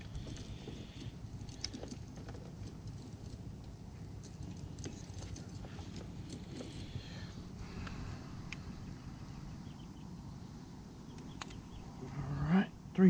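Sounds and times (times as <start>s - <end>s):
clips and cords clinking: 0.0s - 3.5s, 4.2s - 7.0s
low steady rumble: 0.0s - 13.0s.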